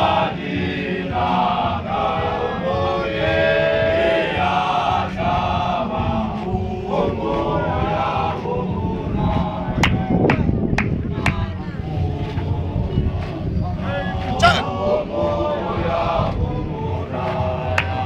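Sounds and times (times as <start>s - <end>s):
men chanting a hymn: 0.0s - 18.0s.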